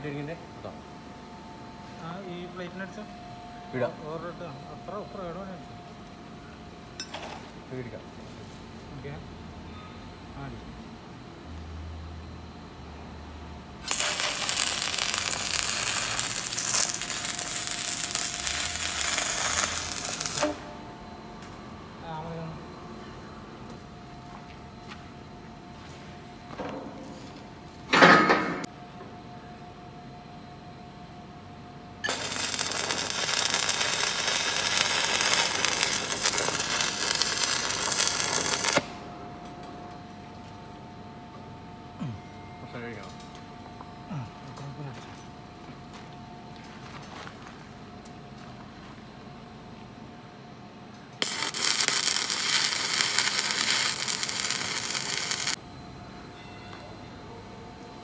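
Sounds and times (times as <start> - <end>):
faint steady whine: 0.0 - 58.0
welding arc crackling: 13.8 - 20.7, 32.0 - 39.0, 51.2 - 55.6
angle grinder grinding steel: 51.2 - 55.6.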